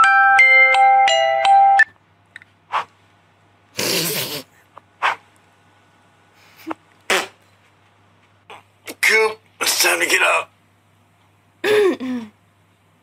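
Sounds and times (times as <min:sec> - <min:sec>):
sharp snorts: 0:02.7 - 0:02.9, 0:03.8 - 0:05.2.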